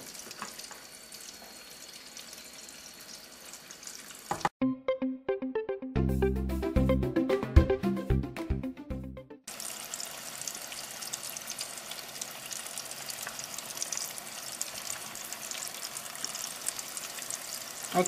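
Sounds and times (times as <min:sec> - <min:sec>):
food deep-frying in oil: 0:00.0 - 0:04.5, 0:09.5 - 0:18.0.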